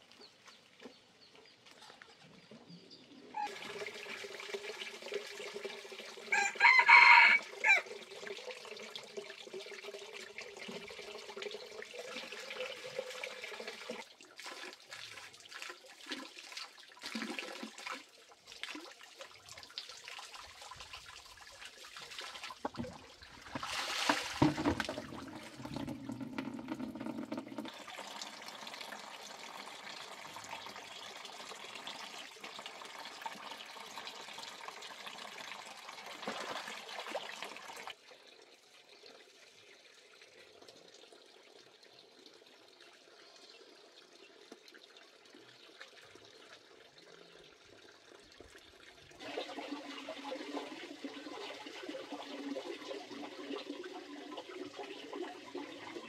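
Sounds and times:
faint outdoor background: 0.0s - 56.0s
water pouring into a basin: 3.3s - 56.0s
food rinsed by hand: 14.3s - 31.2s.

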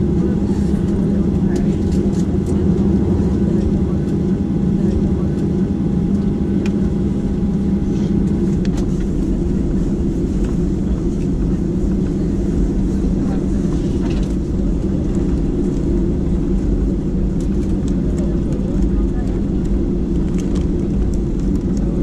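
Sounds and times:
airplane cabin engine rumble: 0.0s - 22.0s.

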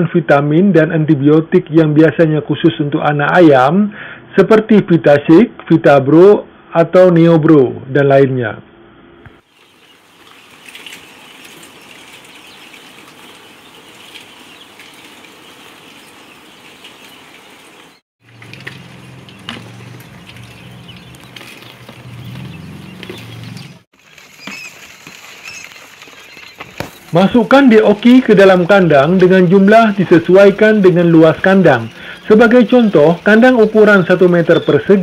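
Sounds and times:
chicks rustling: 9.4s - 35.0s
quail chicks peeping: 9.4s - 35.0s.

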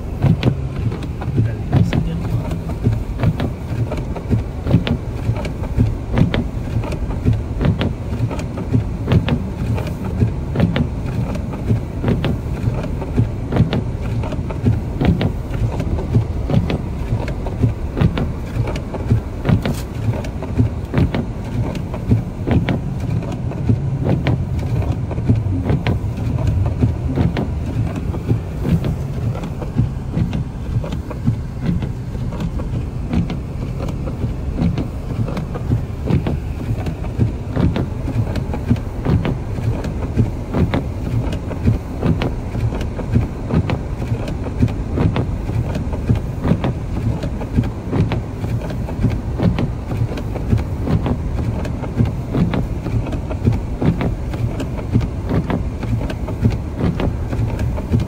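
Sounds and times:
car driving through snow: 0.0s - 58.0s
knocks and thumps: 21.9s - 41.3s.

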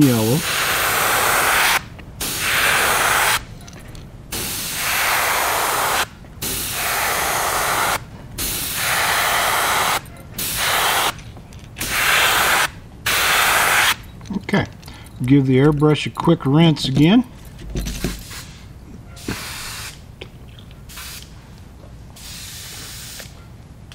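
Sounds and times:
airbrush spraying hiss: 0.0s - 3.5s, 4.3s - 11.2s, 11.8s - 14.0s, 18.2s - 20.0s, 20.9s - 21.4s, 22.2s - 23.4s.

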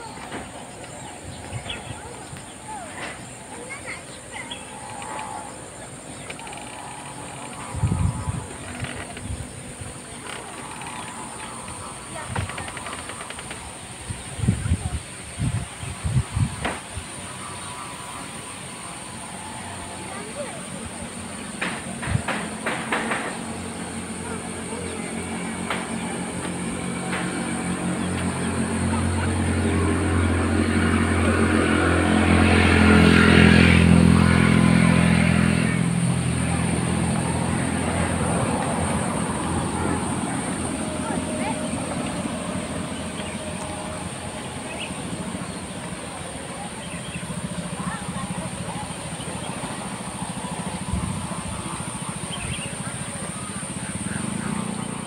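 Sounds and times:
low rumble: 0.0s - 16.6s
engine humming: 0.0s - 55.0s
insects droning: 0.0s - 55.0s.

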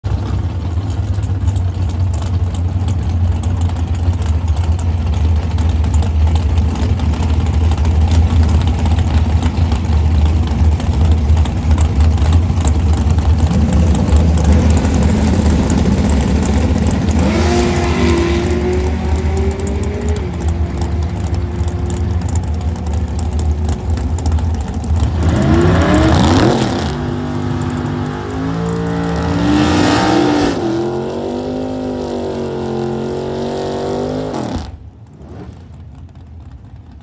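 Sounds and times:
car engine rumbling and revving: 0.1s - 37.0s.

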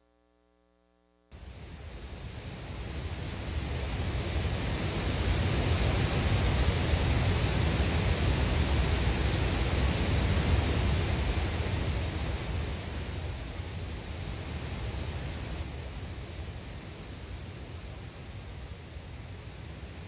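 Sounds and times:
rushing hiss of noise: 1.3s - 20.0s.

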